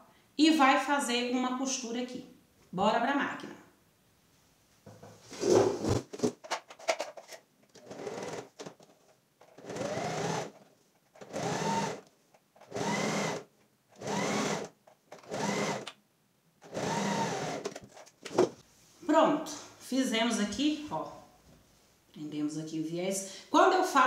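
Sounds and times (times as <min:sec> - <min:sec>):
sewing machine stitching: 0:07.7 - 0:08.7, 0:09.6 - 0:10.6, 0:11.2 - 0:12.0, 0:12.6 - 0:15.9, 0:16.6 - 0:17.9.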